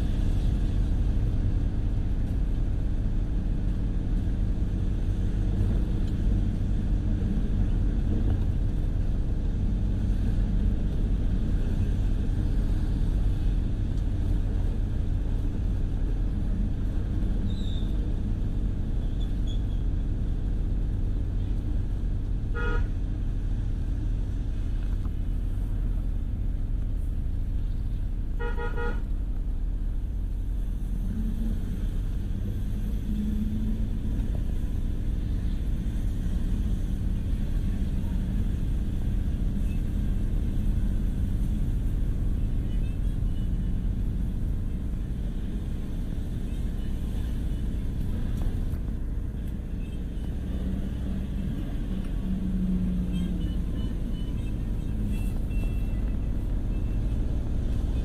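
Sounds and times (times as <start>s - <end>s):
car rumbling on road: 0.0s - 58.0s
car horn toots: 22.6s - 22.9s, 28.4s - 29.0s.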